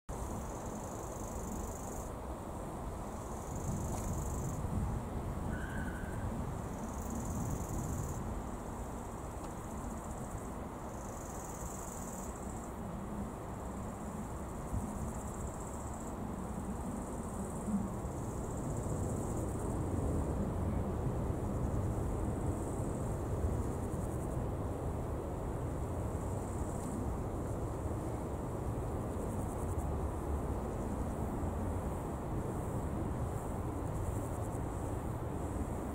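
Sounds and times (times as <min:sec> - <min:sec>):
insects trilling: 0:00.1 - 0:04.7, 0:05.3 - 0:20.2.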